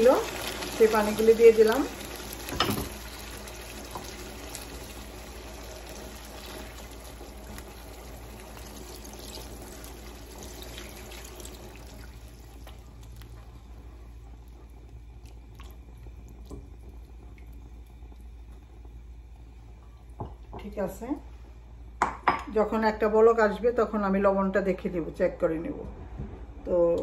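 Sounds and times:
water pouring into a pan: 0.0 - 13.4.

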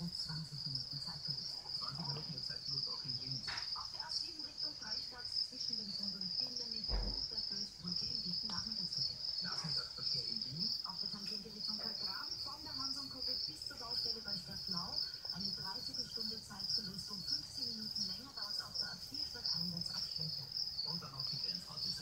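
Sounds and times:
cricket chirping: 0.0 - 22.0
soft low thump: 6.8 - 7.4.

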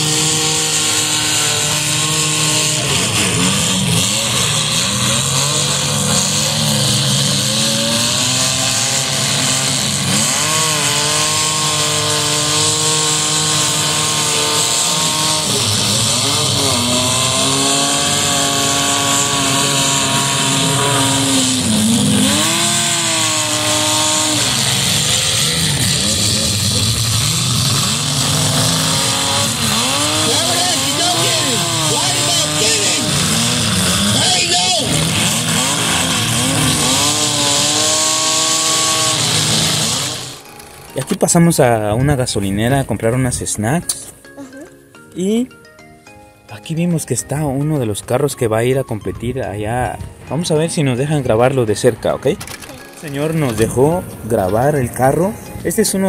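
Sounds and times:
car engines revving hard: 0.0 - 43.5.

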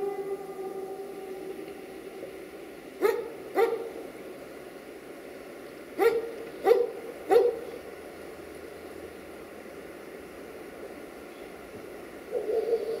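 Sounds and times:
dog barking: 3.0 - 3.9, 6.0 - 7.6.

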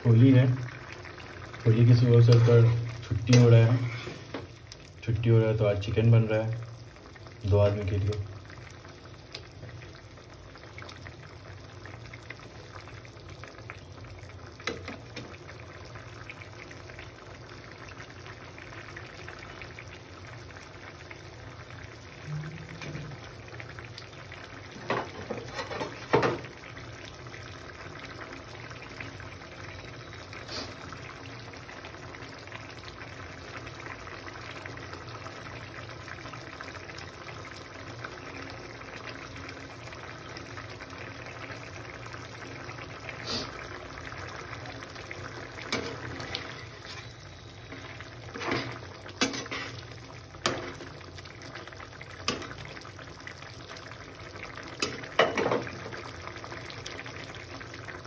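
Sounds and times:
gravy bubbling in a pan: 0.0 - 58.0
metal spatula scraping a pan: 3.7 - 4.3.

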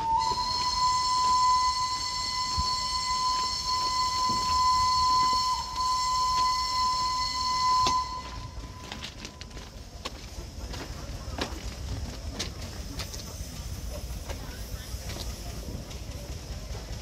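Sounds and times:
locomotive horn: 0.0 - 9.4.

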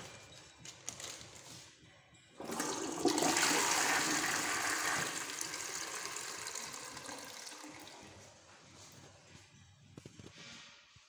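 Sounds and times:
toilet flushing: 2.4 - 8.2.

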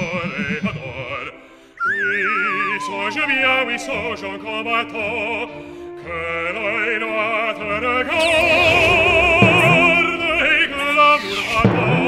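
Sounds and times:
operatic singing with vibrato: 1.0 - 12.0
orchestral music: 2.8 - 12.0.

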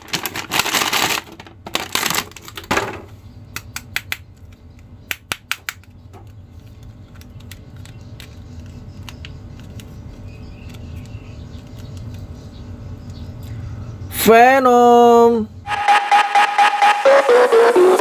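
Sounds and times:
steady low hum: 2.8 - 18.0
plastic figure clicks and taps: 3.5 - 6.4.

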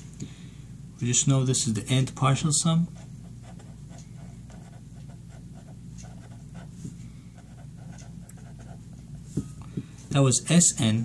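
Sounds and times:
low steady hum: 0.0 - 11.0
pen scratching on paper: 3.0 - 6.7, 7.4 - 9.0.

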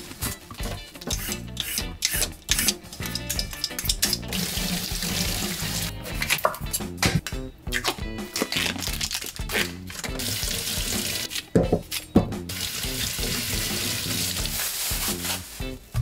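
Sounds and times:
music playing: 0.0 - 16.0
tap water running into sink: 3.6 - 5.9, 10.0 - 11.7, 12.5 - 14.3.

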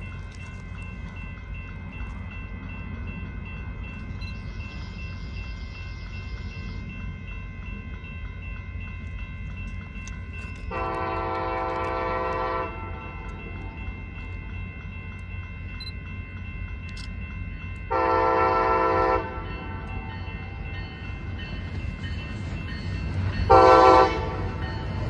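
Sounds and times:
train rumbling: 0.0 - 25.0
locomotive air horn blast: 10.7 - 13.0, 17.9 - 19.4, 23.5 - 24.4.

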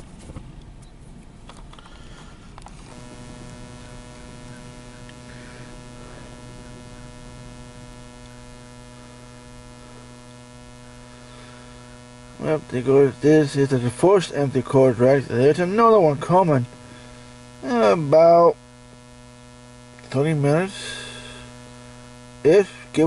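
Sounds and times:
electrical hum: 0.0 - 23.0
clicks: 2.6 - 10.7.

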